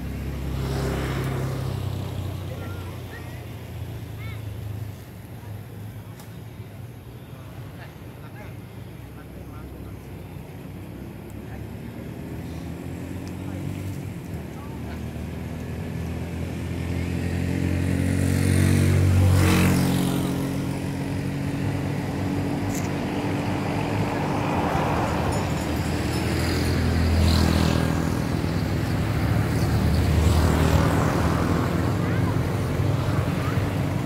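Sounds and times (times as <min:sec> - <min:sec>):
vehicles passing: 0:00.0 - 0:34.0
vehicle engine running: 0:18.6 - 0:34.0.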